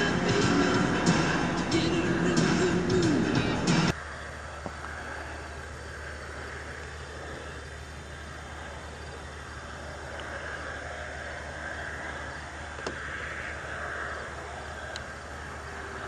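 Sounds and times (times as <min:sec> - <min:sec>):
vehicle engine drone: 0:00.0 - 0:16.0.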